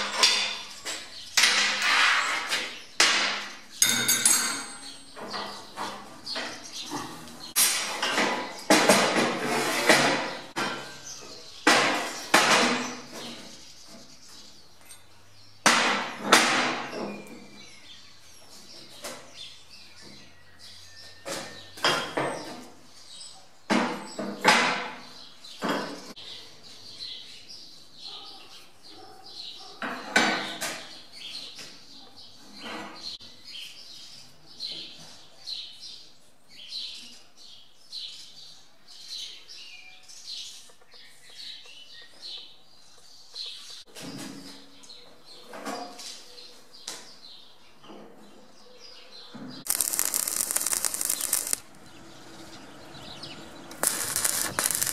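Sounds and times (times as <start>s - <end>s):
birds chirping: 46.4s - 54.9s.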